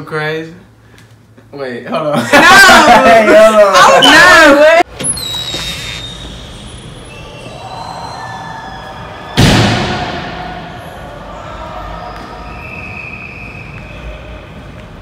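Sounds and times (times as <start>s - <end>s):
loud bang echoing in hall: 8.9s - 12.6s.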